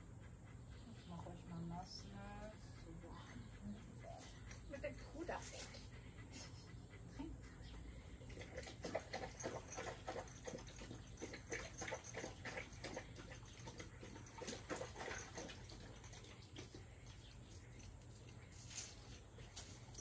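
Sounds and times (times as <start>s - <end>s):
dog lapping water: 8.1s - 18.0s.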